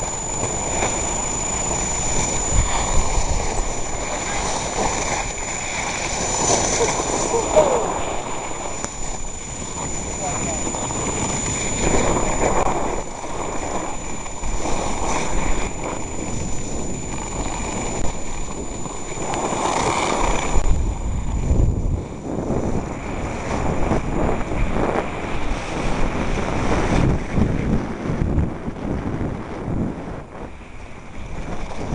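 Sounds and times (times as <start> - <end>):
skis scraping on snow: 0.0 - 21.4, 30.7 - 31.9
wind buffeting microphone: 0.0 - 31.9.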